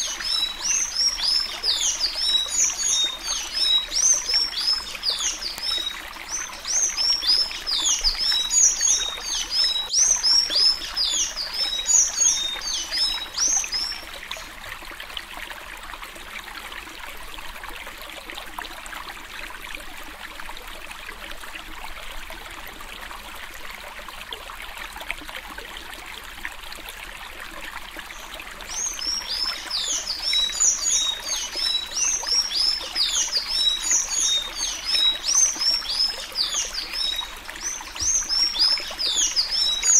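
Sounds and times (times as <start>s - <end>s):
bird singing whistled notes: 0.0s - 14.0s, 28.7s - 39.9s.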